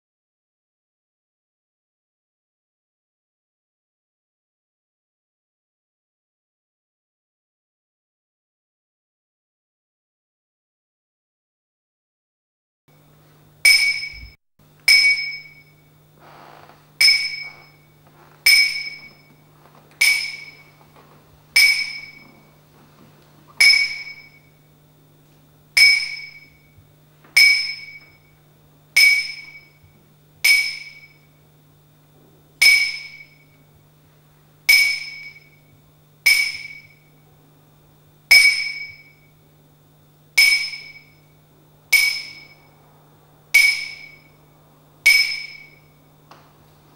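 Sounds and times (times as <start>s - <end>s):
low steady hum: 12.9s - 46.9s
high glassy chime: 13.7s - 22.6s, 23.6s - 24.5s, 25.8s - 26.7s, 27.4s - 28.4s, 29.0s - 29.8s, 32.6s - 33.6s, 34.7s - 35.6s, 40.4s - 41.3s, 41.9s - 42.8s, 43.5s - 44.4s, 45.0s - 46.0s.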